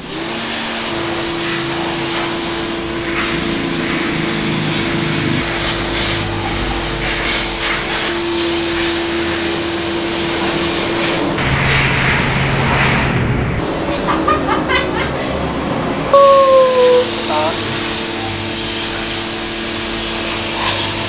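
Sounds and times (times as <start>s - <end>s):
pressure washer motor humming: 0.0s - 10.1s.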